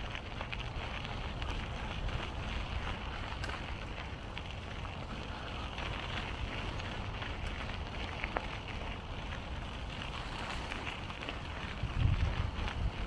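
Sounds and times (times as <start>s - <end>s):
wind rumbling on microphone: 0.0s - 13.0s.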